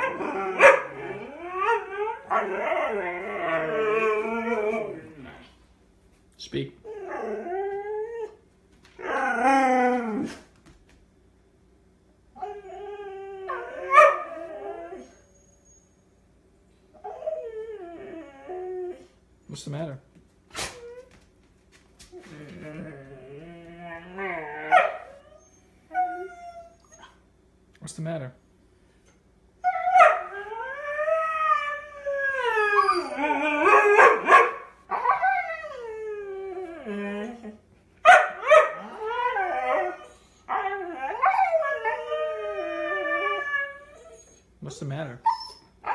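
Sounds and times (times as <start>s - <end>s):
dog yelp: 0.0s - 3.1s, 13.5s - 15.2s, 24.7s - 27.2s, 29.7s - 30.5s, 32.8s - 35.8s, 38.0s - 42.0s
dog howling whines: 0.0s - 5.5s, 6.8s - 8.4s, 9.0s - 10.4s, 12.4s - 16.1s, 17.0s - 19.2s, 22.1s - 27.2s, 29.6s - 44.5s, 45.2s - 45.9s.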